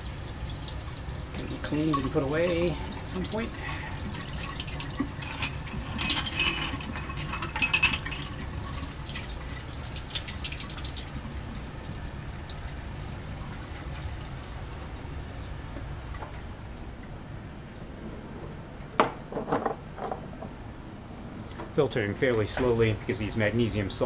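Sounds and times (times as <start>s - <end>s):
faucet water running into sink: 0.0s - 15.2s
glassware clinking: 5.2s - 8.4s.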